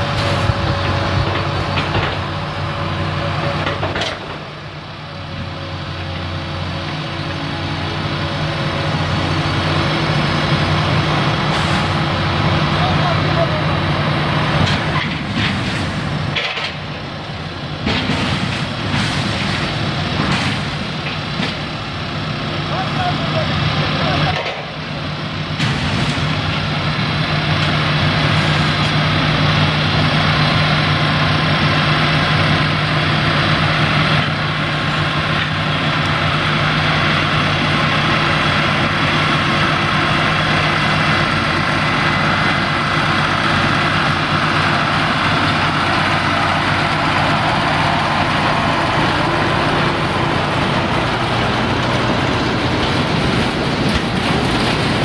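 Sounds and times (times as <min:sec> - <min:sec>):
diesel locomotive running: 0:00.0 - 0:55.0
wagon wheels rolling on rails: 0:41.6 - 0:55.0.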